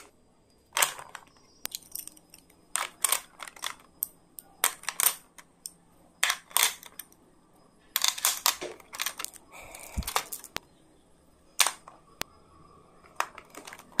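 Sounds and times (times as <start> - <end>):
pens clacking against pencil case: 0.8 - 7.1, 8.0 - 10.6.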